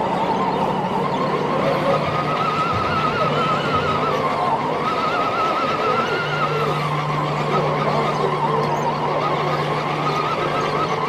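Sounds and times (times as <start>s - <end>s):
electric motor whining: 0.0s - 11.0s
large hall background noise: 0.0s - 11.0s.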